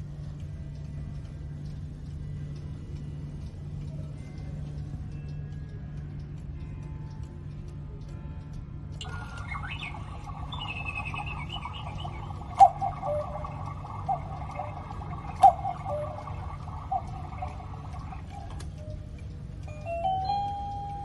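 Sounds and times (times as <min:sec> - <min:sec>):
clock click: 0:03.4 - 0:21.0
two-note cuckoo calls: 0:09.0 - 0:19.2
recorded birdsong: 0:09.0 - 0:19.3.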